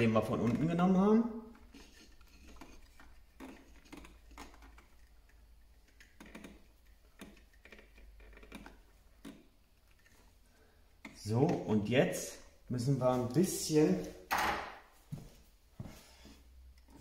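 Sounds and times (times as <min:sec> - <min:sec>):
screwdriver clicking and scraping: 0:01.5 - 0:10.3.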